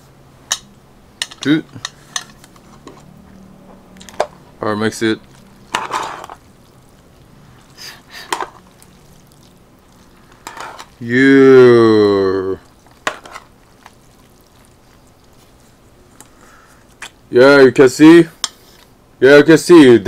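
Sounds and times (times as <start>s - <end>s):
chopsticks stirring noodles in bowl: 1.2s - 17.2s
man's drawn-out vocal sound: 11.0s - 12.7s.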